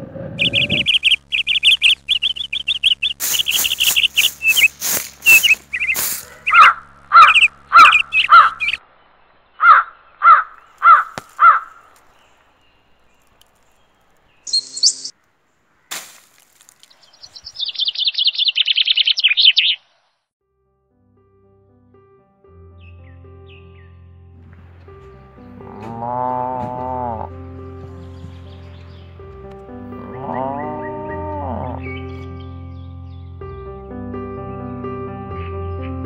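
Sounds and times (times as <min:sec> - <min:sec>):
fast trill of chirps: 0:00.4 - 0:08.8, 0:14.4 - 0:15.1, 0:17.1 - 0:19.9
birds calling: 0:00.4 - 0:20.2, 0:24.6 - 0:32.9.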